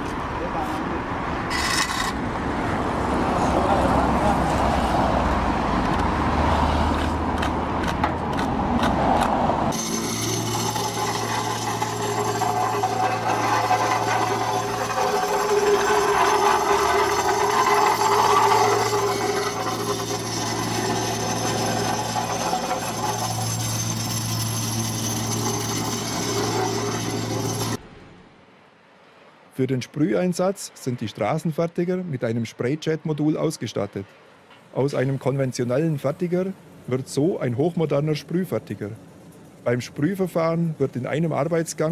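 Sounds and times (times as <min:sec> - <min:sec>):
shovels scraping asphalt: 0:01.5 - 0:02.2, 0:09.8 - 0:27.8
plate compactor engine humming: 0:09.7 - 0:27.8.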